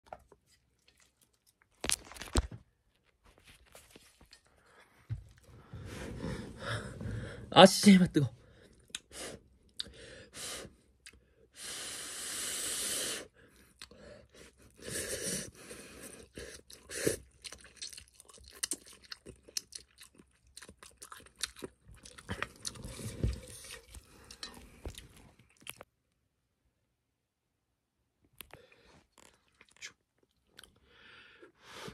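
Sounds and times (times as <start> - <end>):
wet chewing and lip-smacking: 16.1 - 25.9, 28.4 - 30.8.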